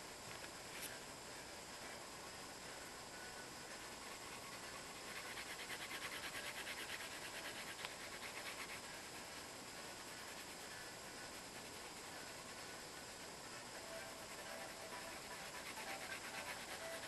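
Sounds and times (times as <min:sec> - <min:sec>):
faint steady hiss: 0:00.0 - 0:17.0
colouring tool scratching paper: 0:03.7 - 0:17.0.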